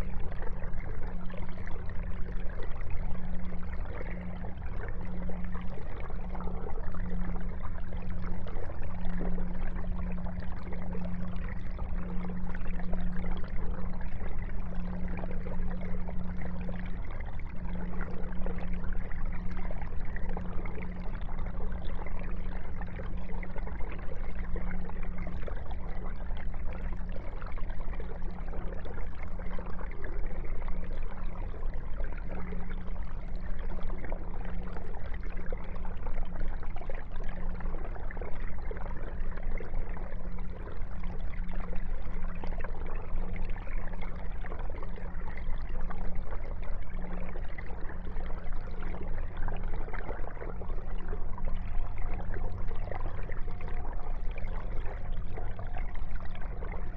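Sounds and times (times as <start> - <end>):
low hum: 0.0 - 56.9
water trickling and splashing: 0.0 - 56.9.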